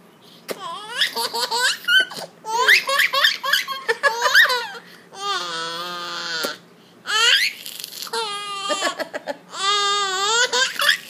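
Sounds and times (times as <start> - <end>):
baby laughing: 0.5 - 11.0.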